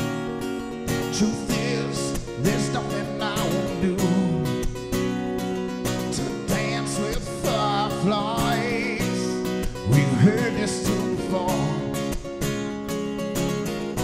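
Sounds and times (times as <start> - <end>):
acoustic guitar strumming: 0.0 - 14.0
man singing: 1.0 - 4.8, 6.0 - 12.1.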